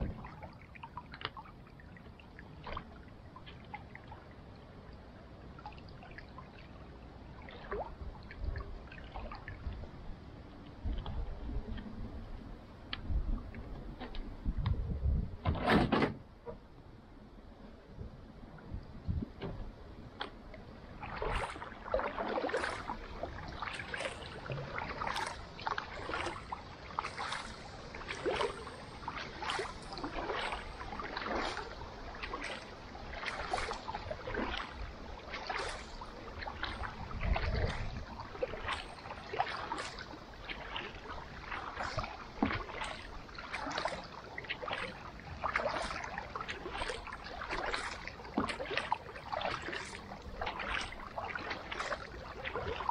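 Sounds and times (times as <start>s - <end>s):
water dripping from paddle: 0.0s - 4.2s, 20.2s - 52.9s
paddle splashing in water: 0.0s - 9.8s, 10.5s - 14.5s, 19.2s - 52.9s.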